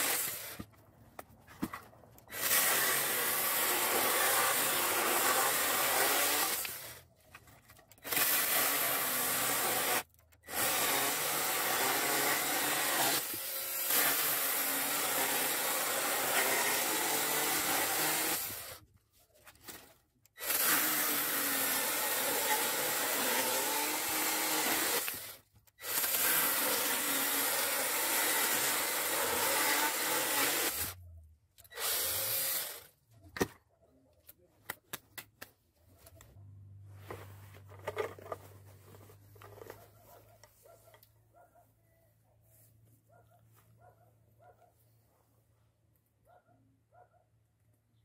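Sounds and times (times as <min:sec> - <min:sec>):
chainsaw cutting through log: 0:00.0 - 0:00.7, 0:02.3 - 0:07.0, 0:08.0 - 0:18.8, 0:20.4 - 0:31.0, 0:31.7 - 0:32.9.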